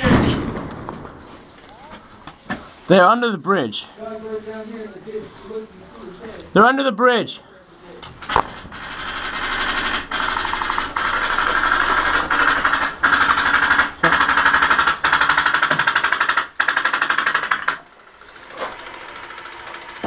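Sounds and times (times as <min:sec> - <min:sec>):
airsoft guns firing full-auto: 0:08.3 - 0:20.0.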